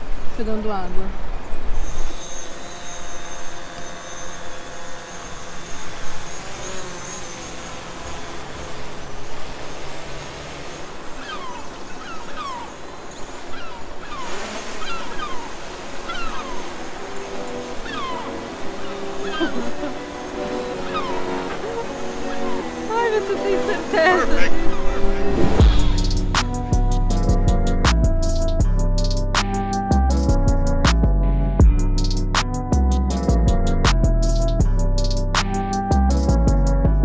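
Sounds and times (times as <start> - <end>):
gulls calling: 1.9 - 27.2
steady rushing noise: 7.4 - 28.6.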